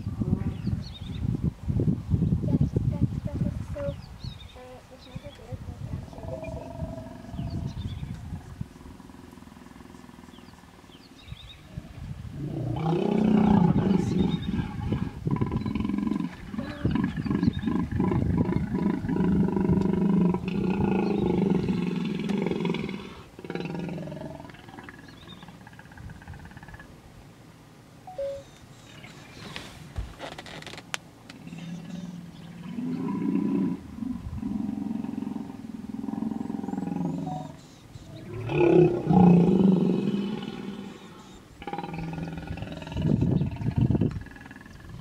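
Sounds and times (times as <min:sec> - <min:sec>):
hippopotamus grunting: 0:38.2 - 0:45.0.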